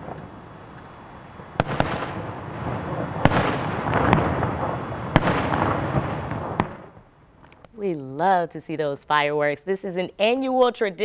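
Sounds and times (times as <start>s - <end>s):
firework bangs: 0.0s - 7.1s
firework crackle: 0.0s - 7.6s.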